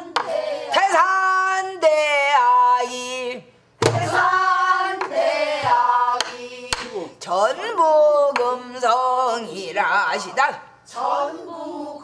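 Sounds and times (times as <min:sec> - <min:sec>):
people singing unaccompanied: 0:00.0 - 0:01.6, 0:03.8 - 0:07.2, 0:08.3 - 0:12.0.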